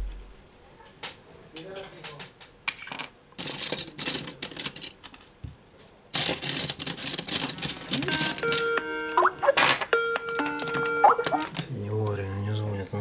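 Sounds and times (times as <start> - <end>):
crackly scraping and rustling: 0.9 - 8.4.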